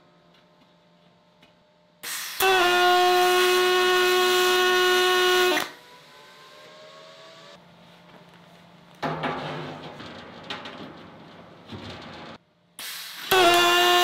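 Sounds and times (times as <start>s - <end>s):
welder arc buzzing: 2.0s - 5.8s, 12.8s - 14.0s.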